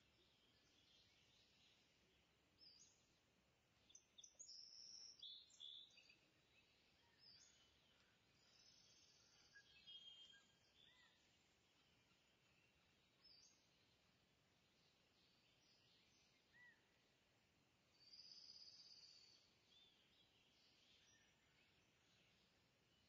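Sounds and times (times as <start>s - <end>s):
faint bird chirps: 3.8s - 17.2s, 17.8s - 23.0s.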